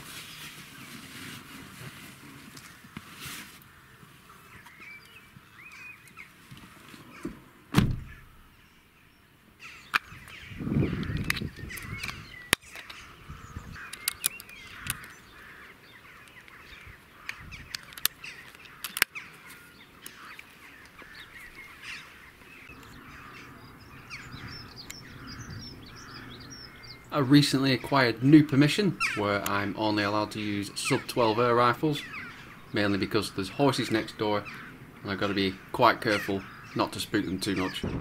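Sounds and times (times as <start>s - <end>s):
birds calling: 1.8s - 38.0s
crows cawing: 2.6s - 4.9s, 8.0s - 8.7s, 9.6s - 38.0s
loud thump: 7.7s - 8.2s, 37.8s - 38.0s.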